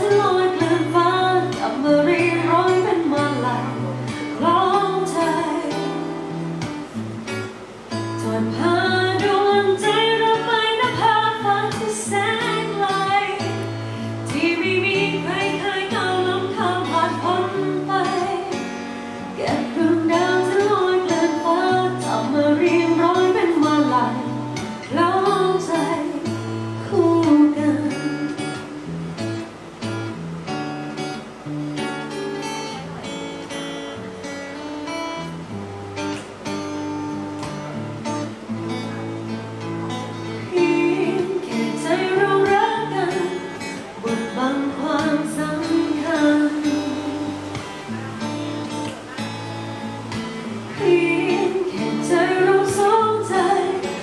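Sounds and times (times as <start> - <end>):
woman singing pop song: 0.0 - 6.9, 7.9 - 28.8, 38.8 - 54.0
acoustic guitar: 0.0 - 54.0.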